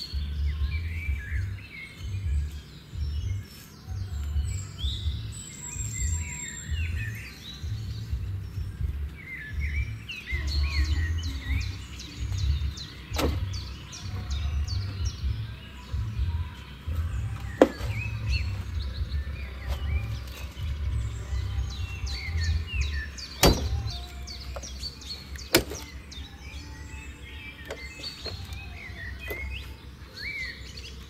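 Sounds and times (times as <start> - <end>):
small birds chirping: 0.0 - 31.0
low uneven rumble: 0.1 - 31.0
sharp knocks: 23.4 - 23.8.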